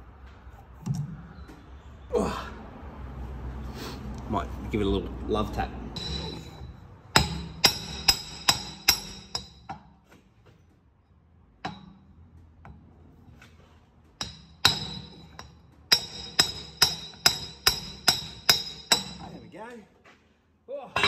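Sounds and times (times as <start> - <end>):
hammer striking metal: 5.9 - 9.9, 11.6 - 12.1, 14.2 - 19.4.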